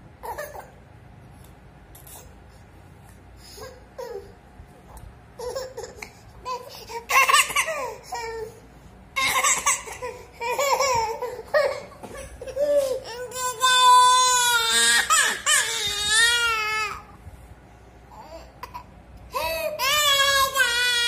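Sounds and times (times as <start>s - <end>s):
toddler wailing: 19.8s - 21.0s.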